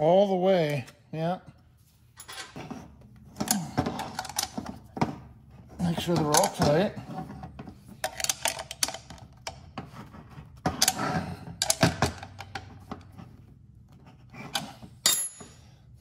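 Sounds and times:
metal clinks and knocks: 14.6s - 15.7s.

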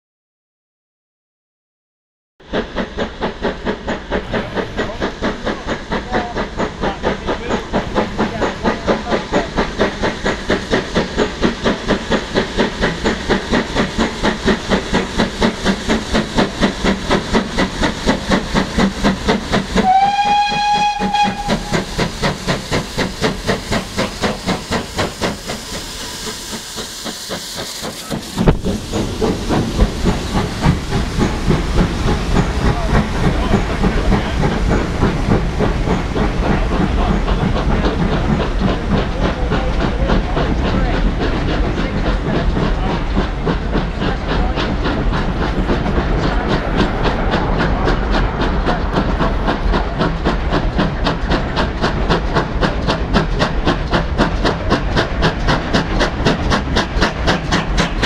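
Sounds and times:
steam locomotive exhaust beating: 2.4s - 58.0s
steam hiss: 2.5s - 58.0s
steam whistle: 19.8s - 21.9s.

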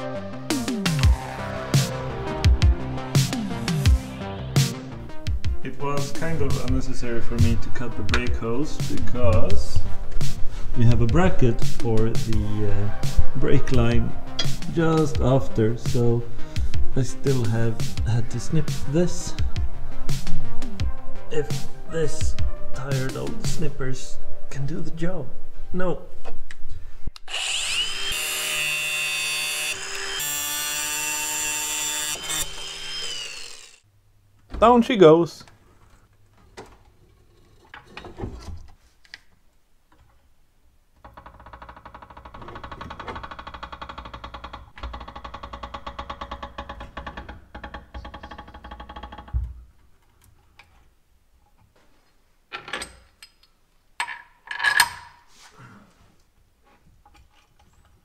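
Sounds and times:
angle grinder cutting metal: 27.2s - 33.8s.

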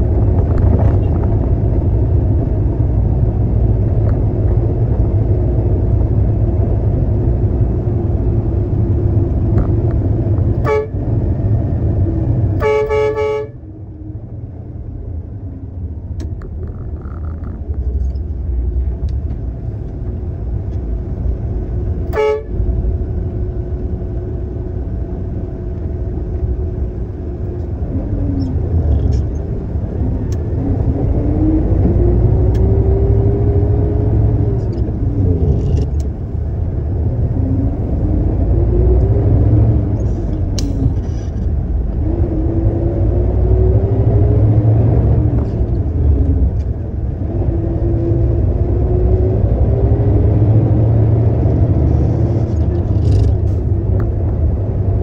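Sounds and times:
truck horn tooting: 10.6s - 11.0s, 12.6s - 13.6s, 22.1s - 22.6s.

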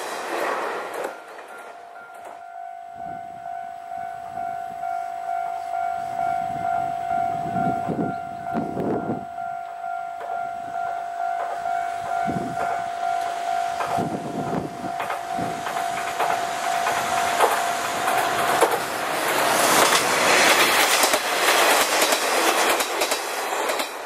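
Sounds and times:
diesel railcars passing: 0.0s - 24.0s
wheel clicks over rail joints: 15.0s - 24.0s.

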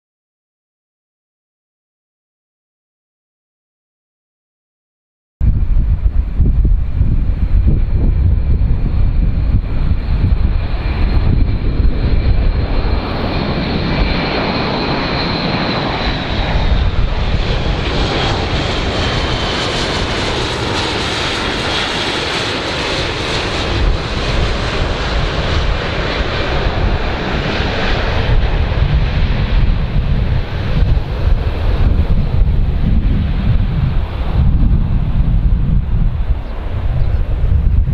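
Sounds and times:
wind buffeting microphone: 5.4s - 37.9s
turboprop aircraft passing overhead: 5.5s - 37.9s.

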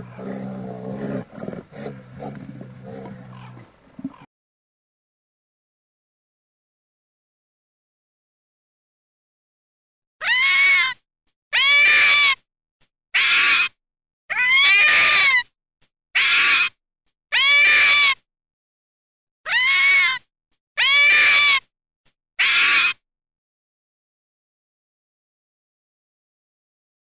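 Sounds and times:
fox wailing cries: 10.2s - 12.4s, 13.2s - 15.4s, 16.2s - 16.7s, 17.3s - 18.2s, 19.5s - 20.2s, 20.8s - 21.6s, 22.4s - 23.0s.

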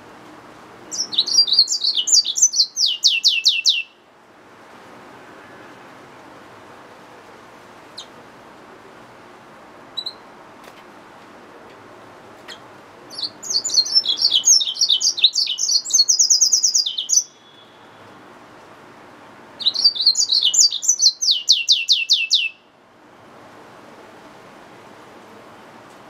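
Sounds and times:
faint steady hiss: 0.0s - 26.0s
finch singing chirps and trills: 0.9s - 3.9s, 10.0s - 10.2s, 12.5s - 17.8s, 19.6s - 22.6s.

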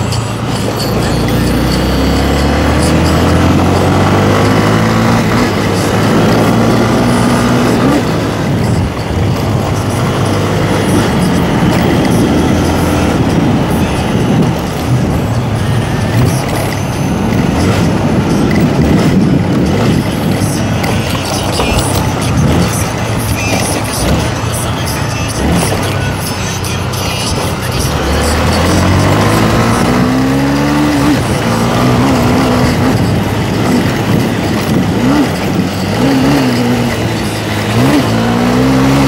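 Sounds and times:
motorcycle engine accelerating: 0.0s - 39.0s
wind rush over microphone: 8.1s - 23.2s.

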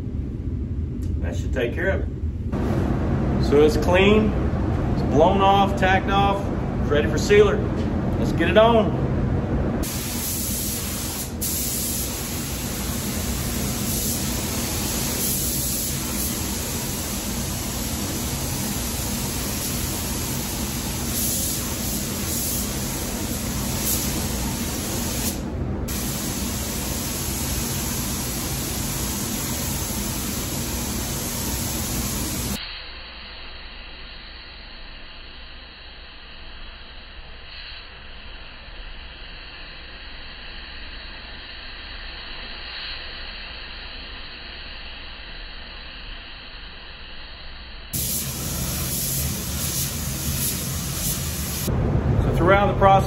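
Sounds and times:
spray gun hissing: 9.8s - 32.6s, 47.9s - 51.7s.

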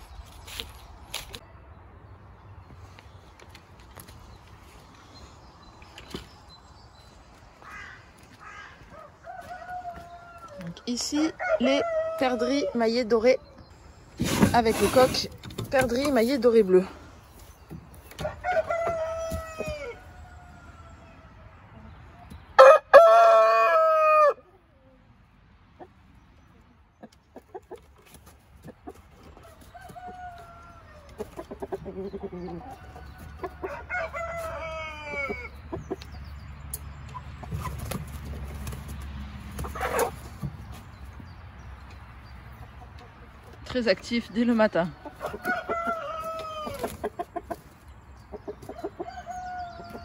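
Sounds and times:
rooster crowing: 8.8s - 10.6s, 22.6s - 24.4s, 32.8s - 35.5s
hens clucking: 25.7s - 50.0s.

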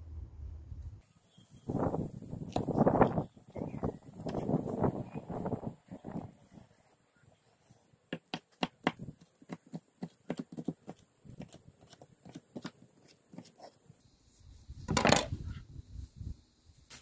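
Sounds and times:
knife chopping on wooden board: 8.1s - 12.8s.

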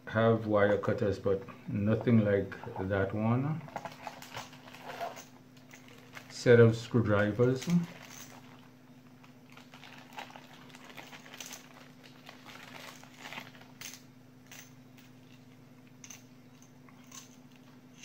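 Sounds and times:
faint low hum: 0.0s - 18.0s
plastic bag crinkling: 3.8s - 6.5s, 7.1s - 13.8s.

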